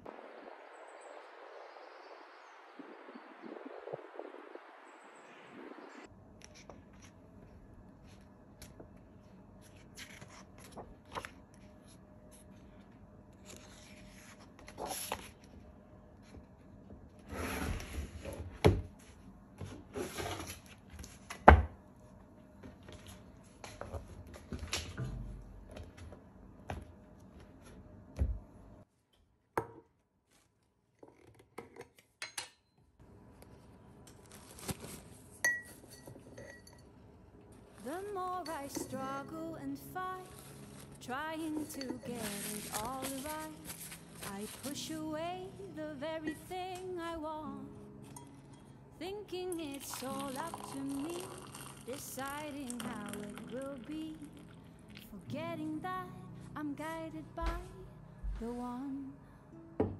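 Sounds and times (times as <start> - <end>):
utensils and dishes clinking: 35.5 - 36.9, 41.5 - 43.9.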